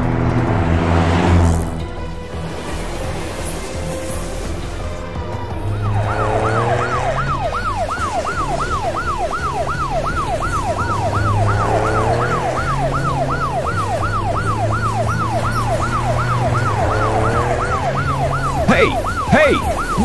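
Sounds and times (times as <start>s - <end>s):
police siren yelping: 5.5s - 20.0s.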